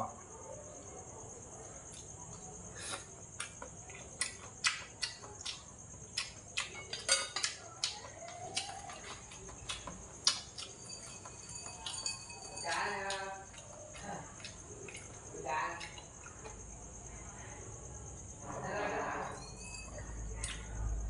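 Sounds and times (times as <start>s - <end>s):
crickets chirring: 0.0s - 21.0s
person chewing: 1.9s - 16.6s.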